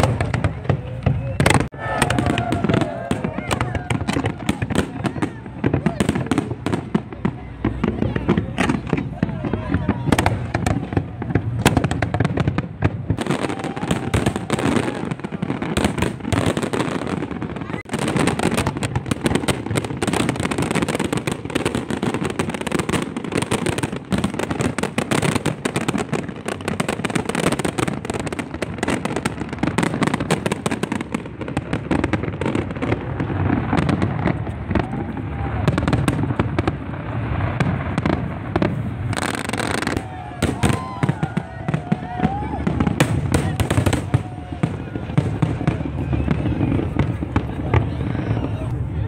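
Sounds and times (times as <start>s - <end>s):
fireworks bursting: 0.0s - 49.0s.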